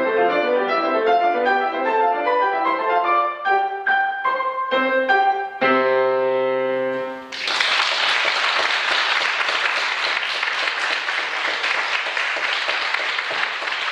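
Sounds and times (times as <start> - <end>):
audience applause: 7.3 - 13.9.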